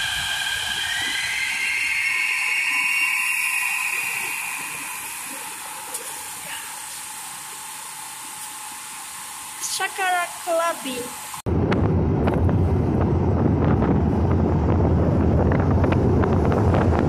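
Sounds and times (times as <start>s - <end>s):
steady hiss: 0.0s - 11.4s
electric train drive whining: 0.0s - 17.0s.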